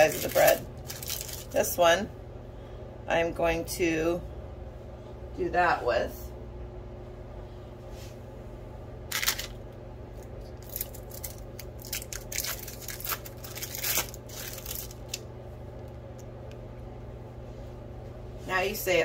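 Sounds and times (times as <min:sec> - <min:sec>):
steady low hum: 0:00.0 - 0:19.0
cheese slices peeling: 0:10.2 - 0:15.2.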